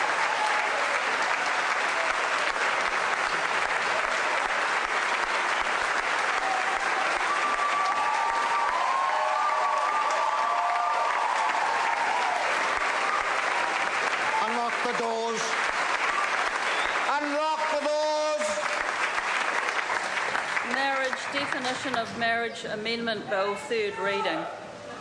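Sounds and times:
crowd applauding: 0.0 - 22.1.

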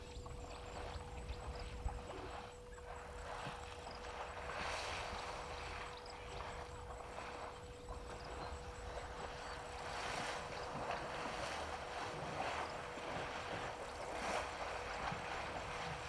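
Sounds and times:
faint hum: 0.0 - 16.0.

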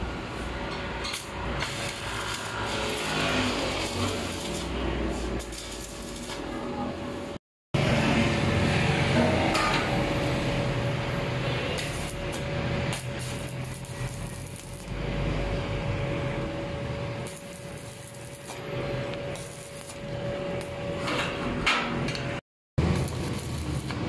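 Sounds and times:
arc welding sizzling and crackling: 0.0 - 7.4, 11.0 - 15.1, 17.1 - 20.9, 22.8 - 24.0
sharp welding pops: 1.0 - 6.4, 11.8 - 14.9, 17.2 - 18.6, 19.3 - 20.0, 22.9 - 24.0.

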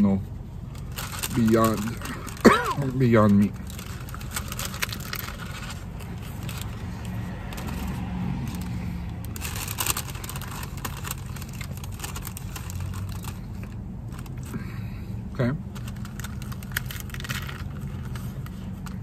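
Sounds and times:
low hum in car cabin: 0.0 - 19.0
crunchy taco being chewed: 3.5 - 14.7, 15.7 - 19.0.

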